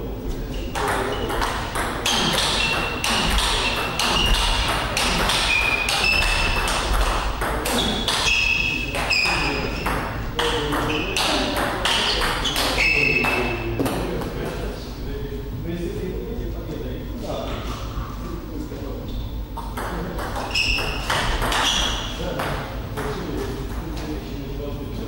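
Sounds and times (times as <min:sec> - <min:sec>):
ball clicking off paddles: 0:00.7 - 0:14.0
ball pinging on table: 0:00.7 - 0:14.0, 0:19.6 - 0:23.2.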